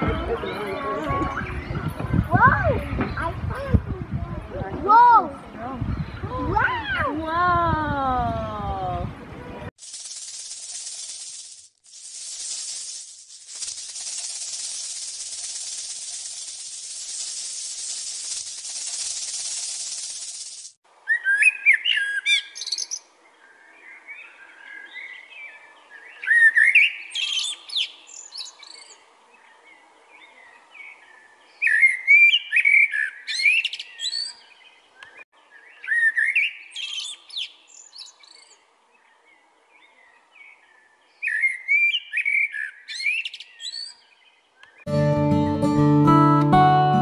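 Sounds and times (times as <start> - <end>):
blackbird singing: 18.3 - 44.9.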